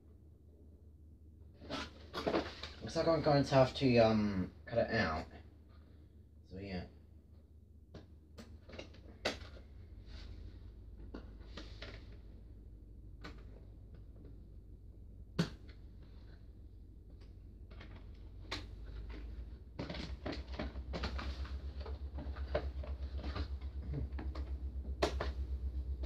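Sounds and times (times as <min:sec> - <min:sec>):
plastic parts clicking and rustling: 0:01.6 - 0:02.8, 0:08.4 - 0:09.7, 0:17.1 - 0:25.4.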